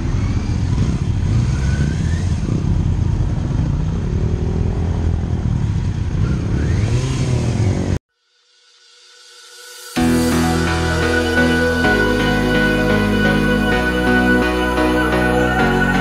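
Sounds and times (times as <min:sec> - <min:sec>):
motorcycle engine accelerating: 0:00.0 - 0:08.0.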